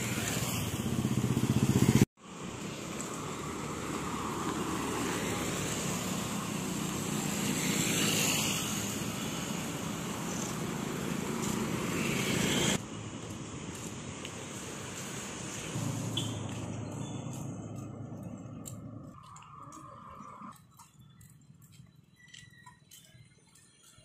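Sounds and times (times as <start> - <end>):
vehicle passing by: 0.0 - 12.8, 14.6 - 20.6
road traffic rumble: 0.0 - 23.9.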